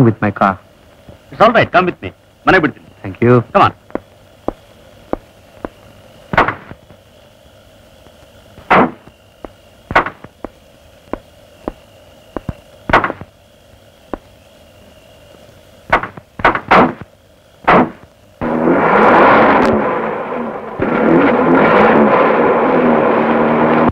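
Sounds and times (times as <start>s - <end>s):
faint steady background noise: 0.0s - 18.5s
sharp knocks and clicks: 12.4s - 13.3s.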